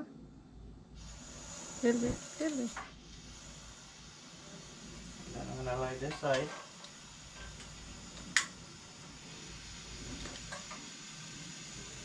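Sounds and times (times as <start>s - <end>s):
gas hissing: 0.9s - 12.0s
lighter click: 7.6s - 8.6s.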